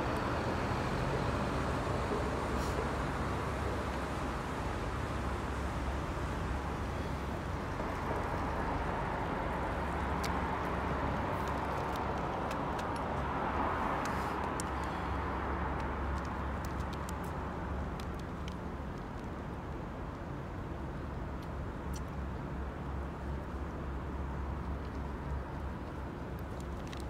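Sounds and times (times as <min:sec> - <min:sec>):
city traffic rumble: 0:00.0 - 0:27.0
small sharp clicks: 0:09.9 - 0:19.4, 0:21.2 - 0:22.4, 0:24.6 - 0:27.0.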